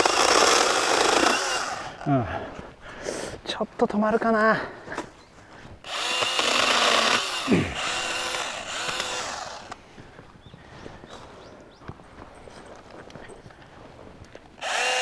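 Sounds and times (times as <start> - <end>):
chainsaw cutting a branch: 0.0 - 2.0, 5.9 - 9.8, 14.6 - 15.0.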